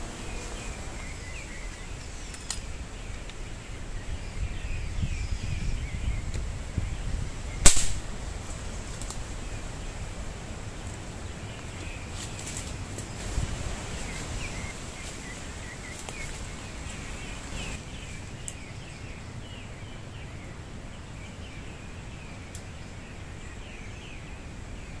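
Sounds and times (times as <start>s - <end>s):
small birds chirping: 0.0s - 25.0s
wind rumbling on microphone: 0.0s - 25.0s
air rifle shot: 7.6s - 8.1s.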